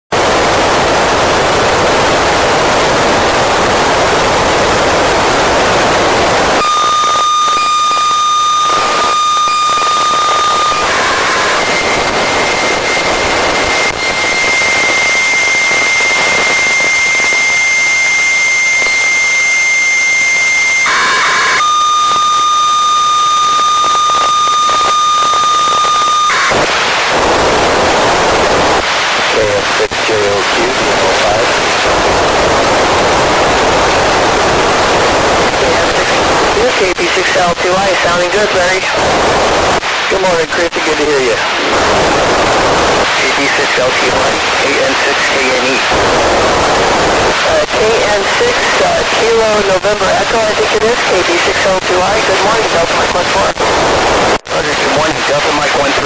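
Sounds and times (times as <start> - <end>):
radio receiver hiss: 0.1 - 56.0
steady whistle tone: 6.6 - 26.6.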